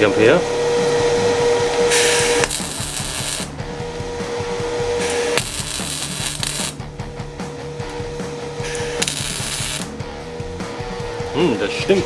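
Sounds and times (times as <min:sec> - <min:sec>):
welder humming: 0:00.0 - 0:12.0
welding arc crackling: 0:01.9 - 0:03.6, 0:05.0 - 0:06.8, 0:08.6 - 0:10.0.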